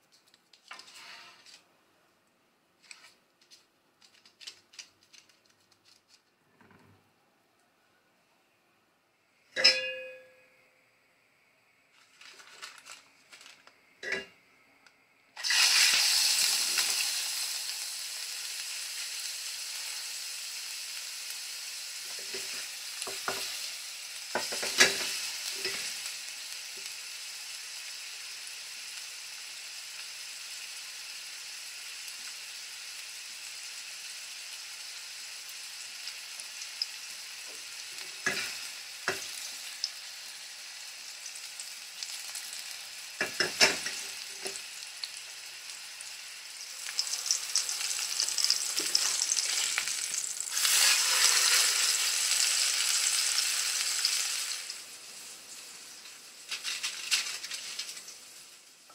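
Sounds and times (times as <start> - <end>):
sausage sizzling in oil: 15.4 - 58.9.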